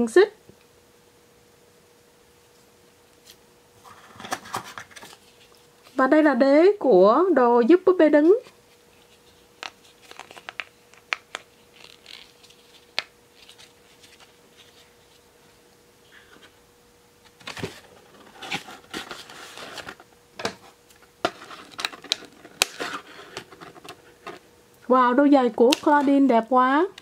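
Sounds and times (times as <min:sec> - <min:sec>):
cardboard rustling: 0:17.4 - 0:24.4.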